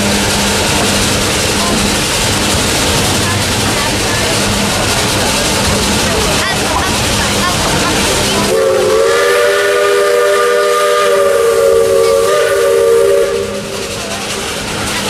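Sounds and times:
steam locomotive whistle: 8.4 - 14.0.

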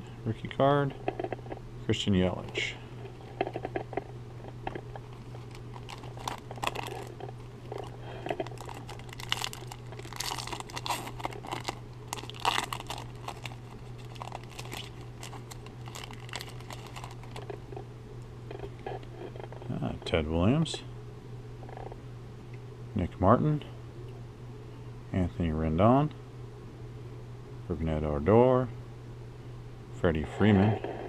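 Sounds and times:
steady low hum: 0.0 - 31.0
cards being handled: 5.0 - 17.5
foil wrapper crinkling and tearing: 5.0 - 17.6.

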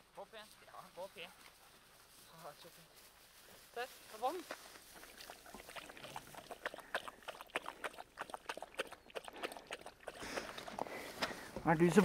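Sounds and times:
dog lapping water: 4.9 - 11.0.

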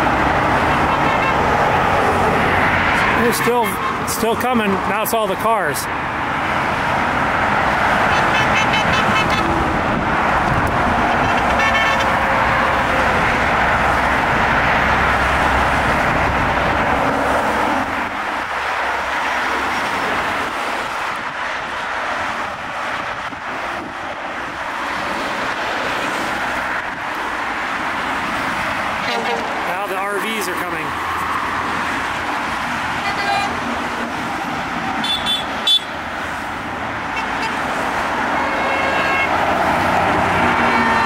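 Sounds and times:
cars passing on highway: 0.0 - 41.0
car horns honking: 0.6 - 1.6, 7.9 - 9.7, 11.0 - 13.2, 29.0 - 29.8, 35.0 - 36.0, 37.1 - 37.6, 38.3 - 39.5, 40.3 - 41.0.

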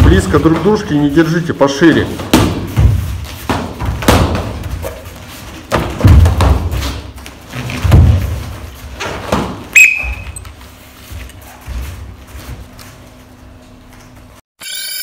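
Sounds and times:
punches and kicks thudding: 2.2 - 4.9, 5.6 - 7.1.

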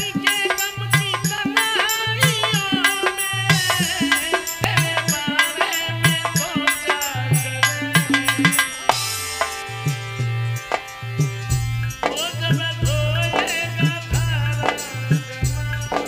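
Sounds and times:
hand drum beat: 0.0 - 16.0
instrumental melody: 0.0 - 16.0
held chords with hissy shimmer: 3.0 - 14.6.

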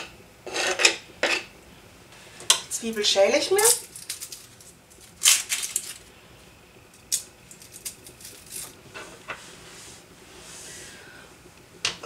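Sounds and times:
onion skin crackling and scraping: 3.6 - 6.1, 7.0 - 8.8.

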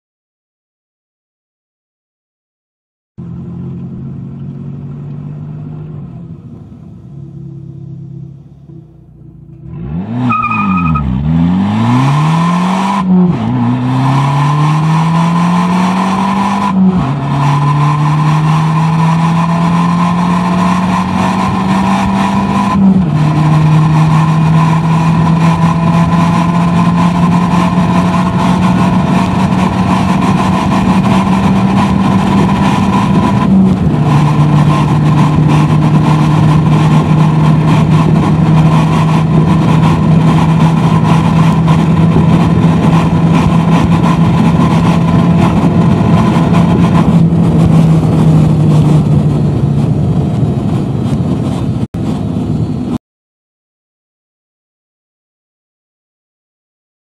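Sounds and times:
car engine accelerating: 3.2 - 53.0
gear upshifts: 8.5 - 52.2.

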